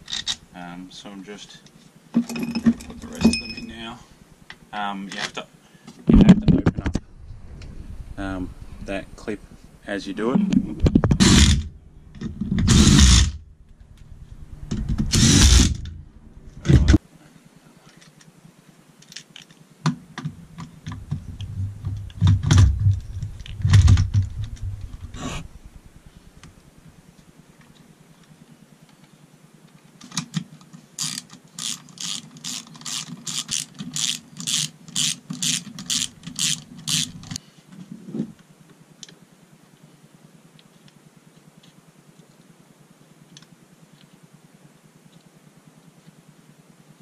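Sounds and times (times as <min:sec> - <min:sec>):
cordless power tool running: 0:12.5 - 0:13.4, 0:14.6 - 0:16.0
socket ratchet clicking: 0:31.0 - 0:37.4.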